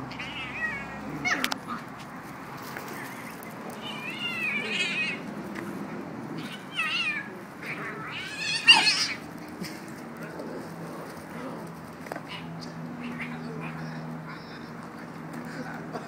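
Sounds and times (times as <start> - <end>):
puppies wrestling: 0.0 - 16.0
kitten meowing: 3.8 - 5.2.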